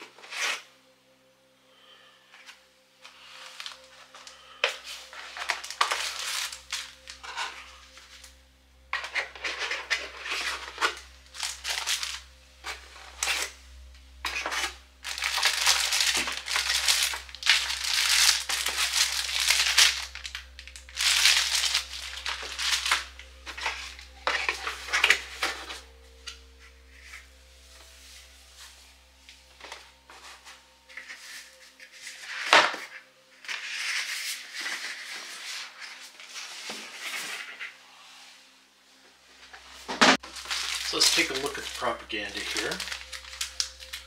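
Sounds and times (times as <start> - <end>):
plastic bags crinkling: 3.4 - 8.0, 9.0 - 13.5, 14.2 - 26.0, 40.2 - 44.0.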